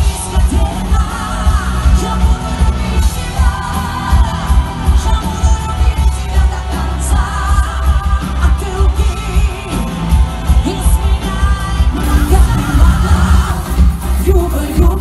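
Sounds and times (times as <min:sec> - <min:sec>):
live pop-rock band playing: 0:00.0 - 0:15.0
woman singing lead: 0:00.0 - 0:15.0
heavy pulsing bass: 0:12.0 - 0:15.0.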